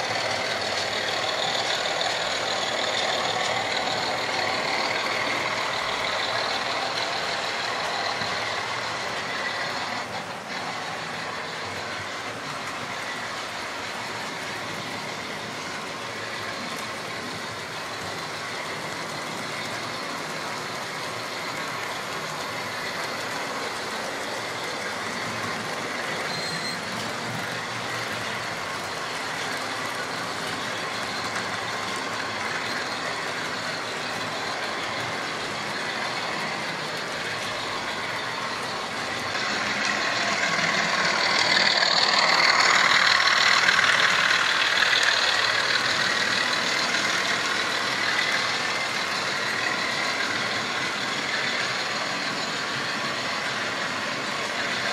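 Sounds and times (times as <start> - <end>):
model trains humming: 0.0 - 54.9.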